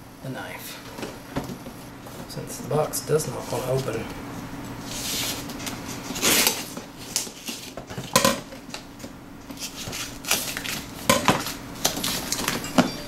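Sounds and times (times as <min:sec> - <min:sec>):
knife scraping cardboard box: 0:06.1 - 0:06.7.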